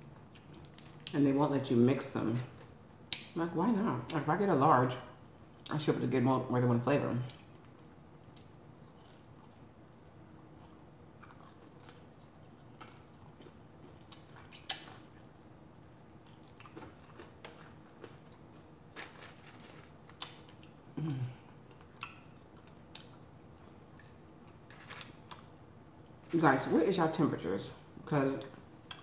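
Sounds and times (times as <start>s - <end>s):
chewing with crunches: 7.3s - 20.8s, 21.5s - 25.5s
person humming mm: 20.9s - 21.5s.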